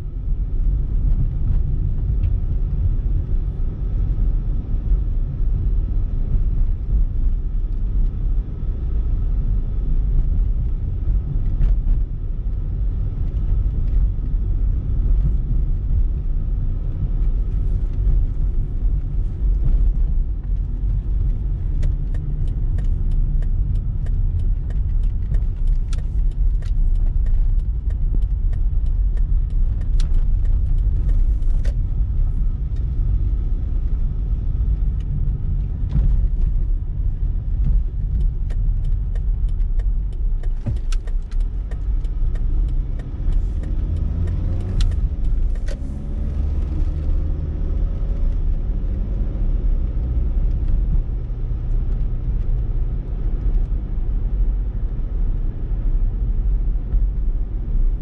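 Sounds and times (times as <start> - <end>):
car road and engine rumble: 0.0 - 58.0
sharp clicks and rattles: 17.2 - 48.6.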